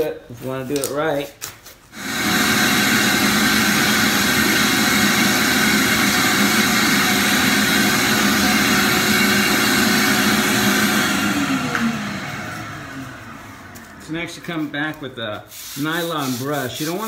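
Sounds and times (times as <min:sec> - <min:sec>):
shop vacuum running: 0:01.9 - 0:17.0
vacuum motor winding down: 0:02.0 - 0:14.6.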